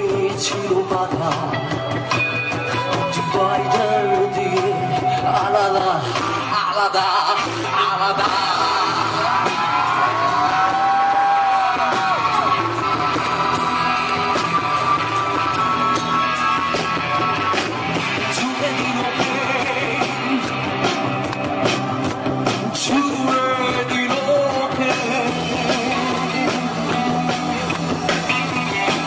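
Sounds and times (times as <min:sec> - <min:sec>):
person singing: 0:00.0 - 0:15.3, 0:17.9 - 0:29.0
bass: 0:00.0 - 0:29.0
drum beat: 0:07.6 - 0:29.0.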